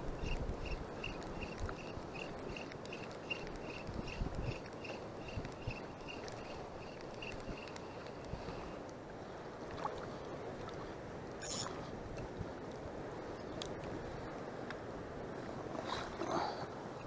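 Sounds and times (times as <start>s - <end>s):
choppy sea water: 0.0s - 17.0s
wind: 0.0s - 17.0s
fishing reel ticking: 0.2s - 8.3s.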